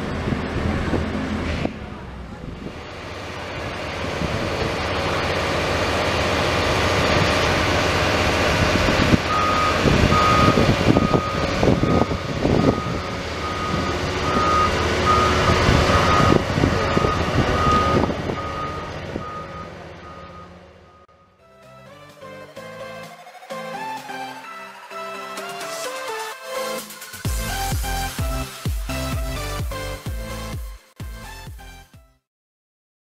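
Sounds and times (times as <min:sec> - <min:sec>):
diesel machinery running: 0:00.0 - 0:31.5
reversing alarm beeping: 0:09.2 - 0:21.6.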